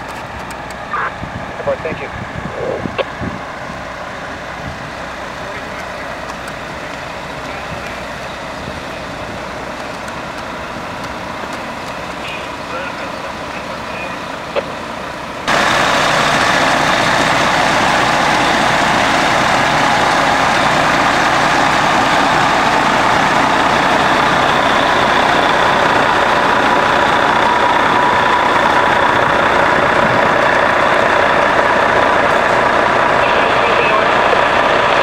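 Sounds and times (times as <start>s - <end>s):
fire engine running: 0.0s - 35.0s
faint steady whine: 0.1s - 19.1s.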